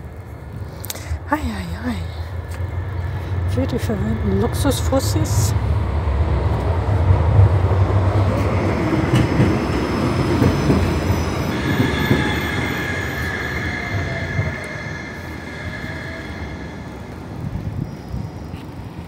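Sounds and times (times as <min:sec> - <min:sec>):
tram wheels rumbling on rails: 0:00.0 - 0:19.0
high wheel squeal on track: 0:09.9 - 0:19.0.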